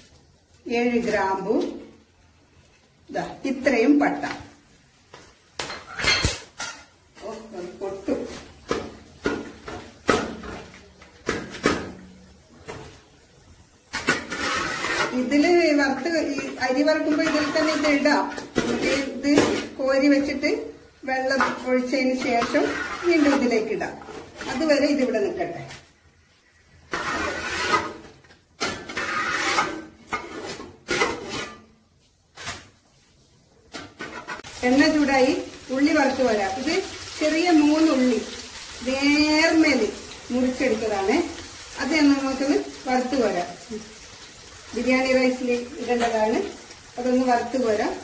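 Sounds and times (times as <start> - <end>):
metal spoon scraping pot: 14.0 - 15.6, 16.2 - 19.8, 21.4 - 24.7, 26.9 - 31.7.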